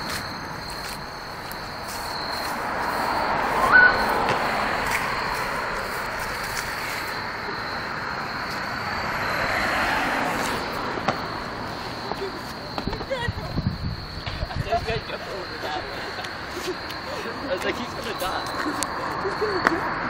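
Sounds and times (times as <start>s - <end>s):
cricket trill: 0.0s - 20.0s
road traffic passing: 0.0s - 20.0s
short rising chirp: 0.2s - 4.3s.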